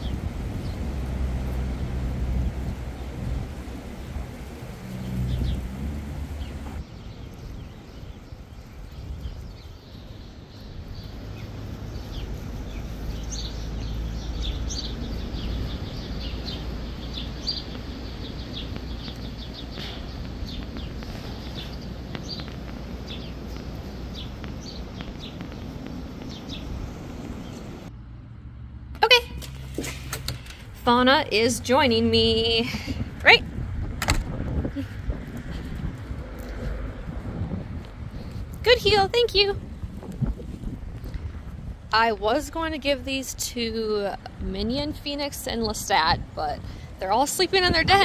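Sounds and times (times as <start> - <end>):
small birds chirping: 0.0 - 0.9, 2.4 - 28.0
wind rumbling on microphone: 0.0 - 28.0, 29.6 - 48.0.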